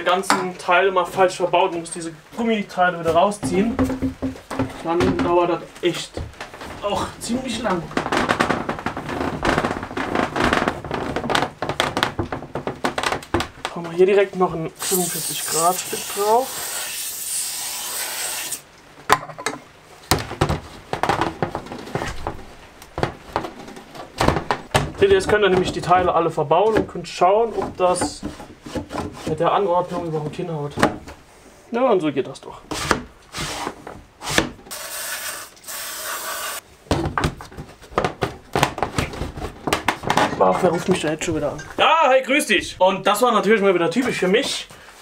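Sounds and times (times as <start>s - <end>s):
plastic pipe fittings knocking: 3.4s - 5.4s, 7.9s - 13.8s
aerosol spray hissing: 14.8s - 16.9s, 34.7s - 36.6s.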